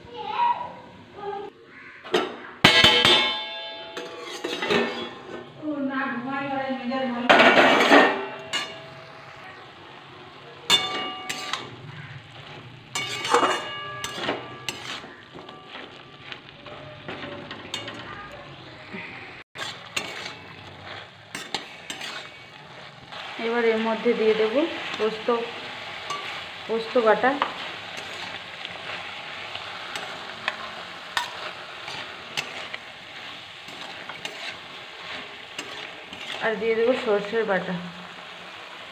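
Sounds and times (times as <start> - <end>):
low frying sizzle: 0.0 - 38.9
spatula clanking against pan: 2.1 - 5.5, 7.3 - 9.0, 10.6 - 18.2, 19.6 - 22.9, 26.0 - 26.6, 27.4 - 29.0, 29.8 - 36.4
spatula scraping a wok: 2.6 - 38.9.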